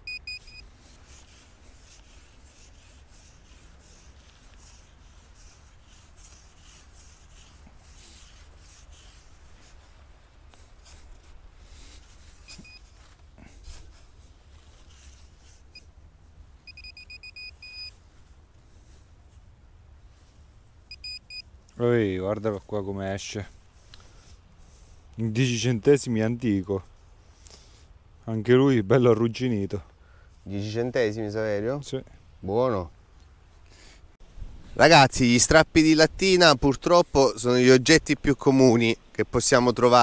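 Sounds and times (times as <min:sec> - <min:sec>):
metal detector beeps: 0:00.0 - 0:00.7, 0:12.4 - 0:13.0, 0:16.6 - 0:18.0, 0:20.9 - 0:21.5
trowel scraping sand: 0:00.4 - 0:15.8.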